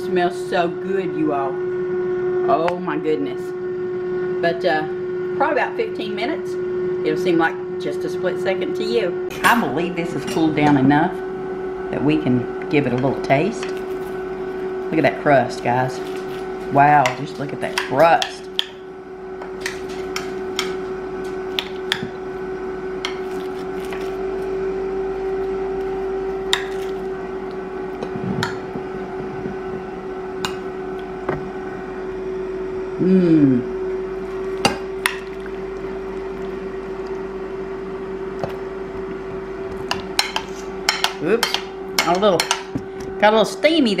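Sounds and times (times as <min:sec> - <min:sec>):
kitchen appliance hum: 0:00.0 - 0:44.0.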